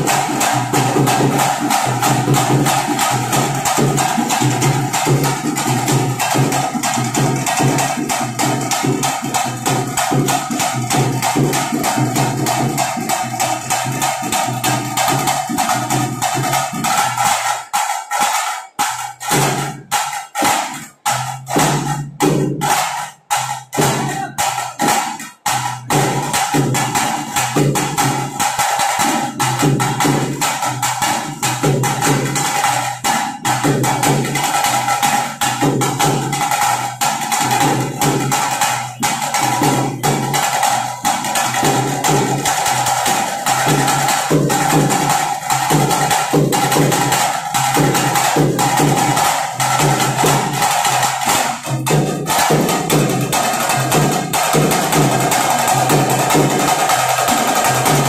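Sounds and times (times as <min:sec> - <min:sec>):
fast dense drumming: 0:00.0 - 0:17.8, 0:18.7 - 0:58.0.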